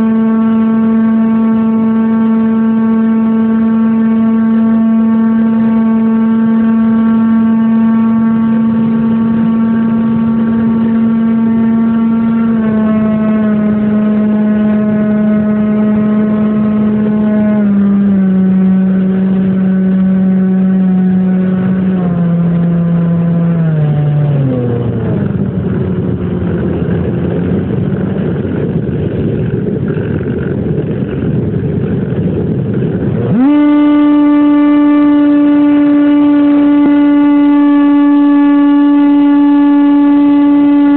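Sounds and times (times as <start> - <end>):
rushing airflow: 8.3 - 39.7
model airplane motor whine: 26.5 - 40.9.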